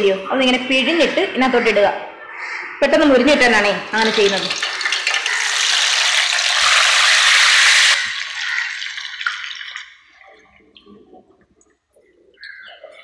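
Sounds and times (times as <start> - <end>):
food sizzling in hot oil: 4.0 - 9.8.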